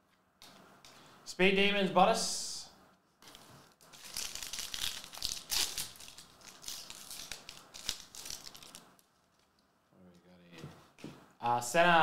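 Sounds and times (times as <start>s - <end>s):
foil wrapper crinkling and tearing: 3.2s - 9.6s.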